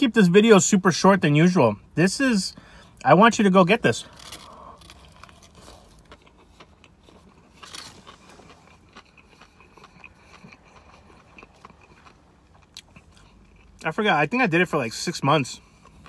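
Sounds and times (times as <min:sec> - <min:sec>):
chewing crispy food: 0:03.9 - 0:14.0, 0:15.5 - 0:16.0.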